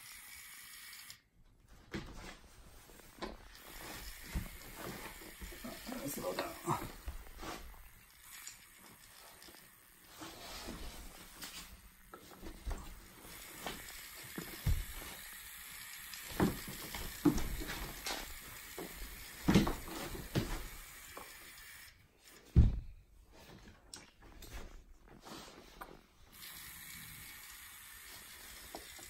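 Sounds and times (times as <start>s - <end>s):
electric gear motors whirring: 0.0s - 1.2s, 3.5s - 10.4s, 13.1s - 22.0s, 26.3s - 29.0s
dull thumps: 22.5s - 23.0s.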